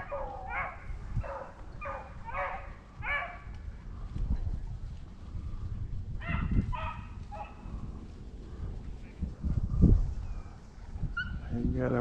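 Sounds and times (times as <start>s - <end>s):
hounds baying: 0.0s - 3.5s, 6.2s - 7.7s.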